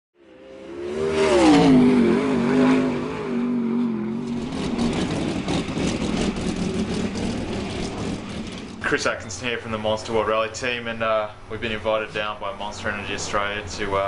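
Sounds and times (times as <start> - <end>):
race car engine idling roughly: 4.4 - 9.1.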